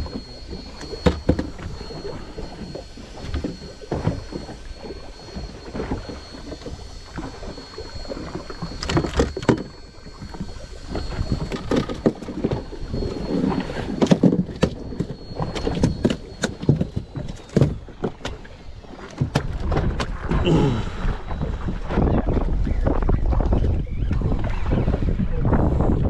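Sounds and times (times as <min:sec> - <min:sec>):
water around a boat: 0:00.0 - 0:26.0
wind: 0:00.0 - 0:26.0
knocks and clatter on fibreglass deck: 0:14.0 - 0:18.5, 0:19.1 - 0:20.3.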